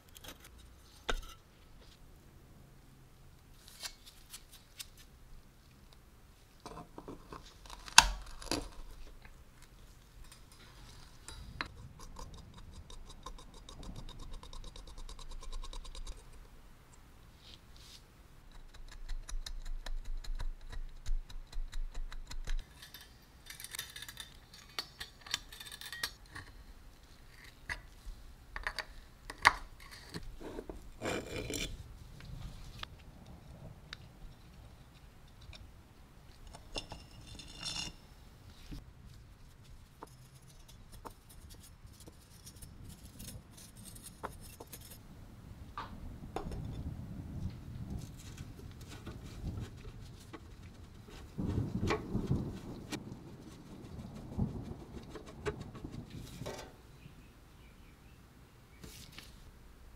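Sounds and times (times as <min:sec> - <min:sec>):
metal clicks and scraping: 0:18.5 - 0:26.6.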